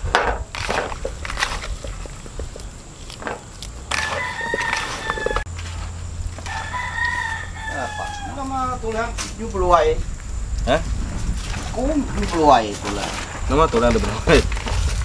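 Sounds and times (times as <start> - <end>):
chicken pieces mixed by hand: 0.6 - 5.4
rooster crowing: 3.8 - 5.5, 6.3 - 9.0.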